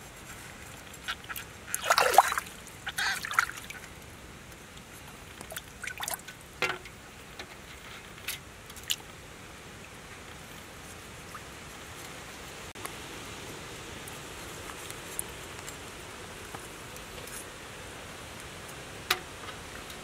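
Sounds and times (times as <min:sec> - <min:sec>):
running water hiss: 0:00.0 - 0:20.0
water dripping and trickling: 0:00.6 - 0:09.2.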